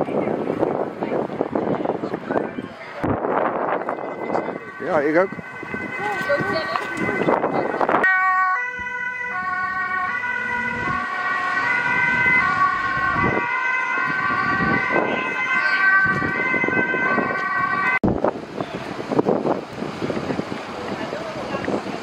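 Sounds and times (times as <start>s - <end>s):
ambulance siren: 2.5s - 18.0s.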